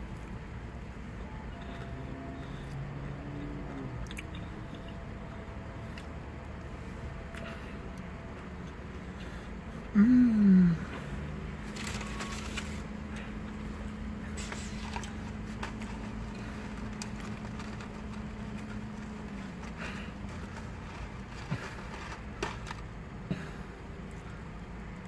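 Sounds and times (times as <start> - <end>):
steady low hum: 0.0 - 25.0
person chewing food: 1.6 - 5.0
soft crackles and rustles: 11.6 - 25.0.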